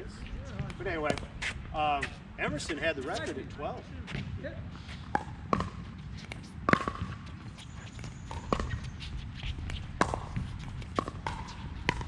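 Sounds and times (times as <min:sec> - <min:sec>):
paddles striking plastic ball: 0:06.7 - 0:07.2, 0:10.0 - 0:12.0.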